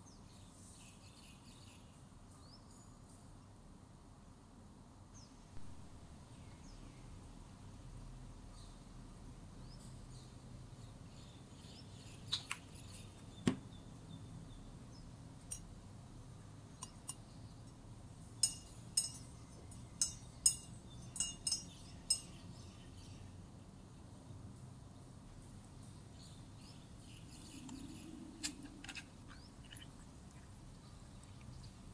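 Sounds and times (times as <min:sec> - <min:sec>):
metal spoon clinking in glass jug: 0:18.4 - 0:22.4.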